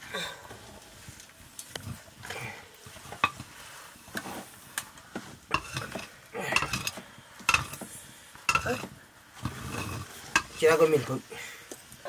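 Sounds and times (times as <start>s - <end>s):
metal utensil scraping in pot: 5.5s - 7.8s, 8.5s - 10.8s.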